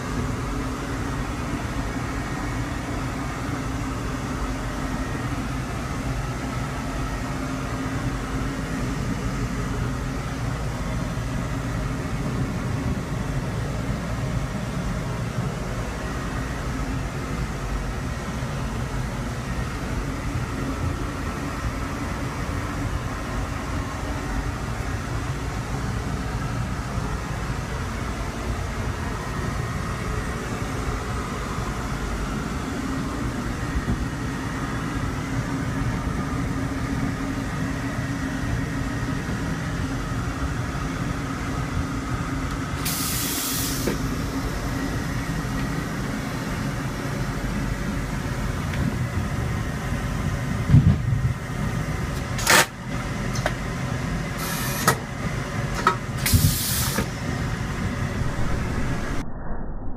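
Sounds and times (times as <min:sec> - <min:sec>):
train rumble: 0:00.0 - 0:59.9
valve clicks and hisses: 0:42.8 - 0:44.0, 0:54.4 - 0:55.0, 0:56.2 - 0:57.1.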